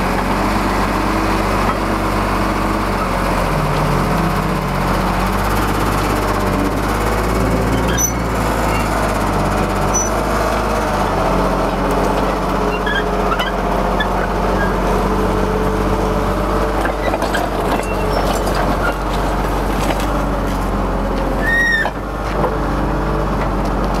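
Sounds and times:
vehicle engine running: 0.0 - 24.0
short squeal: 7.7 - 9.1, 9.9 - 10.2, 12.7 - 14.8, 17.8 - 18.4, 21.4 - 21.9.

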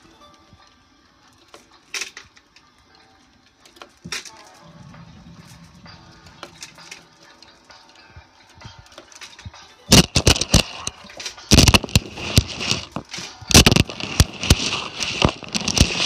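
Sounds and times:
wooden beads clacking: 8.8 - 16.0.

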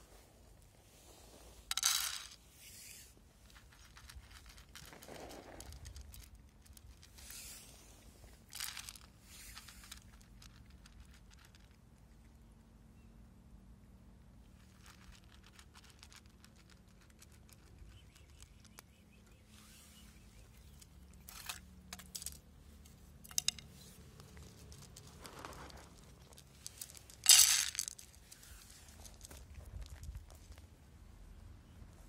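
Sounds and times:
cats crunching dry kibble: 3.3 - 12.7, 14.2 - 19.4, 20.2 - 30.9.

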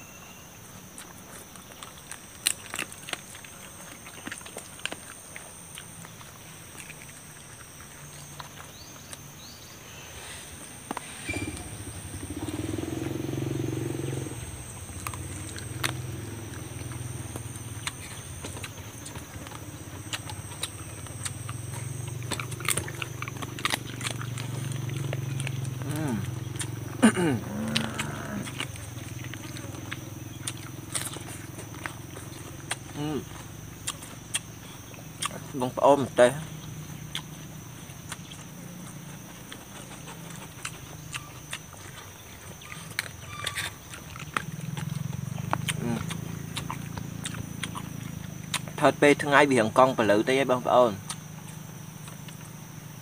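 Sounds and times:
steady low hum: 0.0 - 53.0
person chewing and tearing chicken: 0.9 - 9.2, 17.8 - 26.7, 27.6 - 35.5, 38.0 - 48.8.

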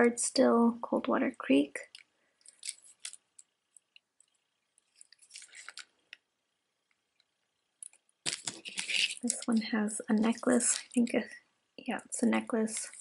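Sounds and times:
earrings rustling and clicking: 1.8 - 6.2, 7.8 - 9.6, 10.5 - 11.1, 12.7 - 13.0.

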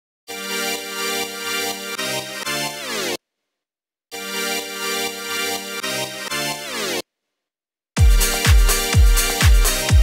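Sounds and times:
electronic chords music: 0.3 - 3.2, 4.2 - 7.0, 8.0 - 10.0.

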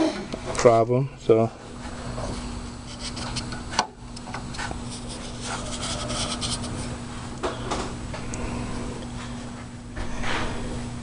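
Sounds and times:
steady low hum: 0.0 - 11.0
cotton swab scratchy rubs: 4.6 - 6.9.

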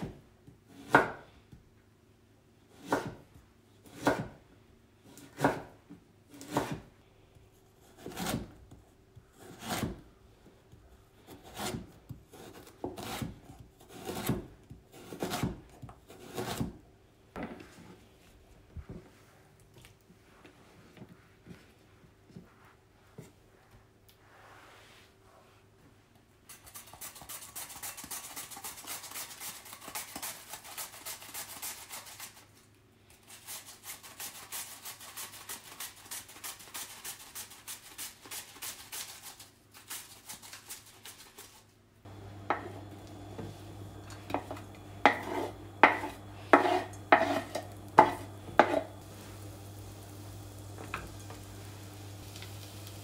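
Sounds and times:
mandoline slicing onion: 0.7 - 1.3, 2.7 - 4.4, 5.1 - 6.9, 7.6 - 10.1, 11.2 - 16.8, 26.5 - 32.4, 33.1 - 53.0
induction hob humming: 42.1 - 53.0.

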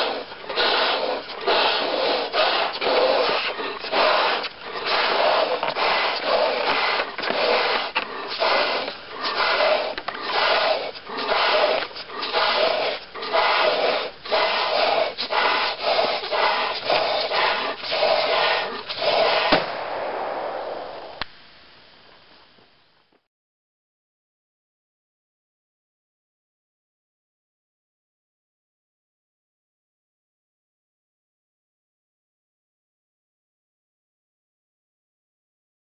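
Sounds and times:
person blowing up balloon: 0.0 - 19.8
balloon bursting bang: 19.4 - 21.2.

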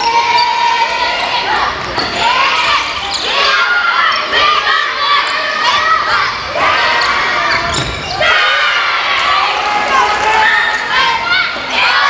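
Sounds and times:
children shouting: 0.0 - 12.0.

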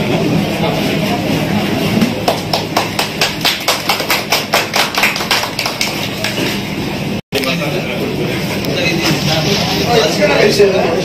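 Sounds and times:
murmur of crowd: 0.0 - 2.8, 6.0 - 11.0
crowd clapping in unison: 2.2 - 6.5.

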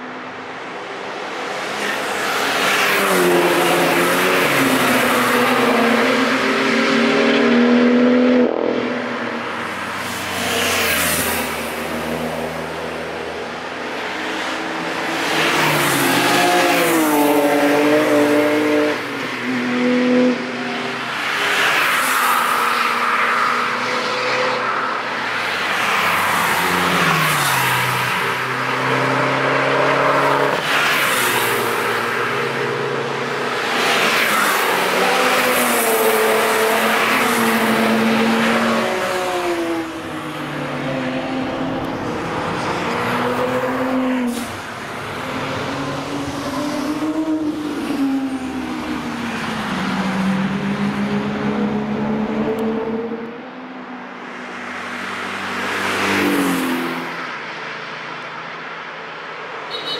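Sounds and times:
cars revving past: 0.3 - 58.5.

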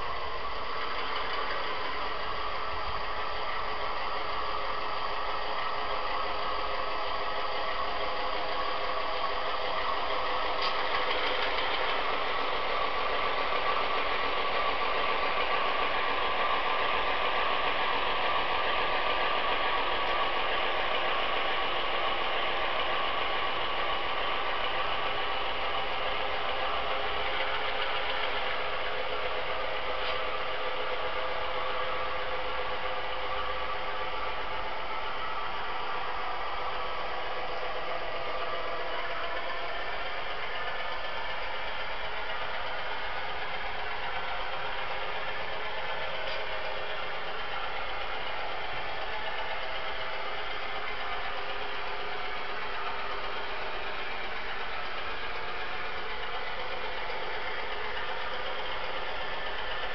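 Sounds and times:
model locomotive diesel engine sound: 0.0 - 59.9.

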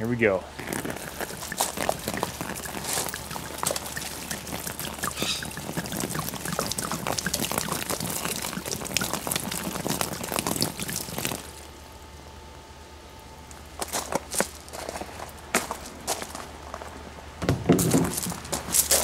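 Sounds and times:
water splashing on fabric: 0.5 - 11.7.

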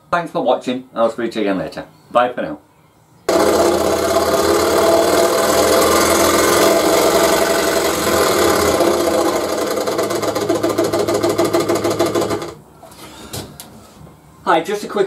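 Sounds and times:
scroll saw running: 3.3 - 12.6.

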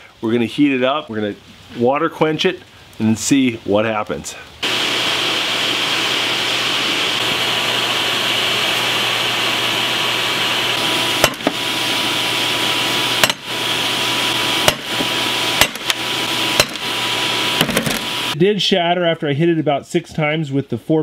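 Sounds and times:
steady hiss: 0.0 - 18.4
sledgehammer striking steel: 11.2 - 11.6, 13.2 - 13.5, 14.6 - 16.0, 16.6 - 16.9
steel piece shattering: 11.2 - 11.6, 13.2 - 13.5, 14.6 - 16.9.

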